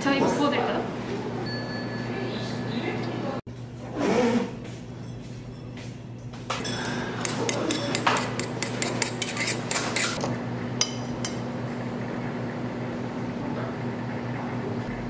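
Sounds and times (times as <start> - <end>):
metal chopsticks clinking in dish: 6.6 - 10.2.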